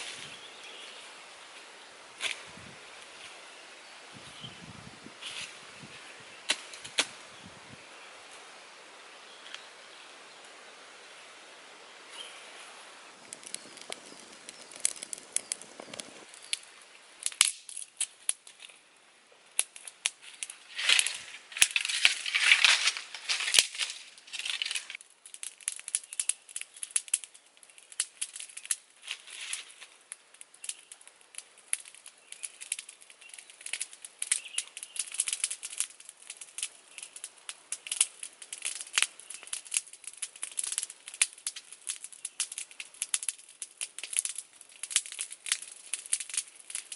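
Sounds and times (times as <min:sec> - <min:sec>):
fire crackling and popping: 0:00.0 - 0:46.9
rustling of handling: 0:20.2 - 0:25.0.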